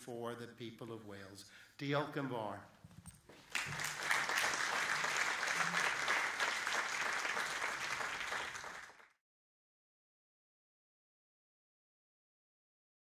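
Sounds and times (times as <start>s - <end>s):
audience applauding: 3.4s - 9.2s.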